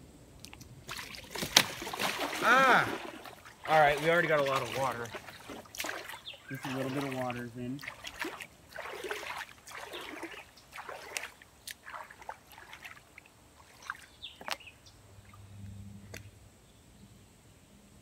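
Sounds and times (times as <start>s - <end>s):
water dripping: 0.4s - 14.6s
hands splashing water: 0.8s - 14.6s
faint low hum: 14.3s - 18.0s.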